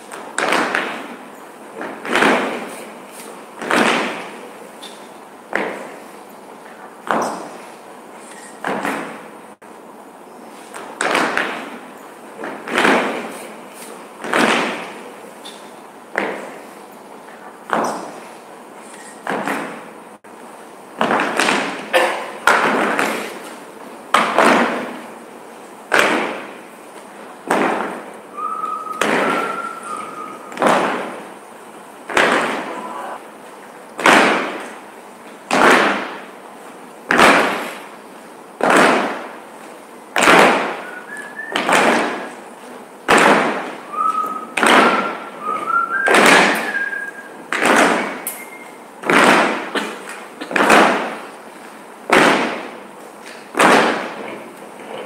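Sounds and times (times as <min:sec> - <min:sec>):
short high squeaks: 0:08.2 - 0:08.6, 0:18.8 - 0:19.2, 0:28.3 - 0:30.6, 0:48.2 - 0:48.8.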